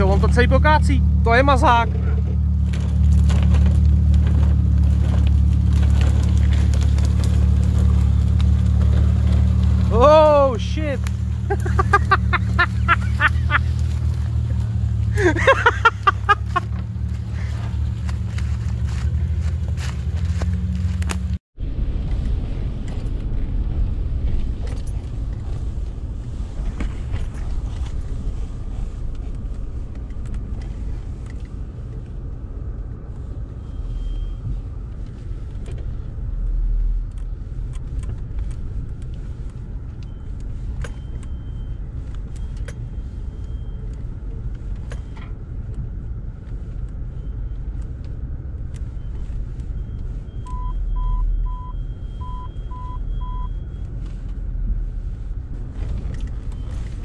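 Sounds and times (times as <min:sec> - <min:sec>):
knocks and rattles of vehicle body: 0:00.0 - 0:21.4
engine rumble inside vehicle cabin: 0:00.0 - 0:57.0
short beeps: 0:49.8 - 0:53.8.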